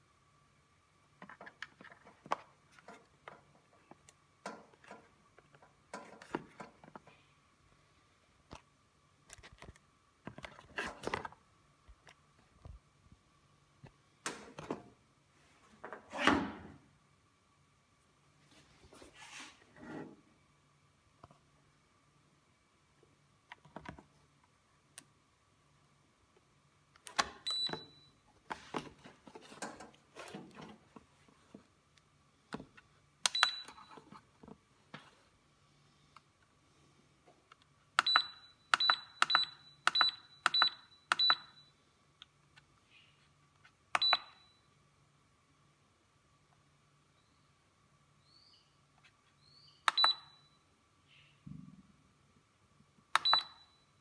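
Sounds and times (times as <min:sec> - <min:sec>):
faint steady whine: 0:00.0 - 0:54.0
rustling and handling noise: 0:01.1 - 0:13.2, 0:18.3 - 0:20.3, 0:27.5 - 0:37.9
plastic clicks of plug and buttons: 0:49.8 - 0:50.2.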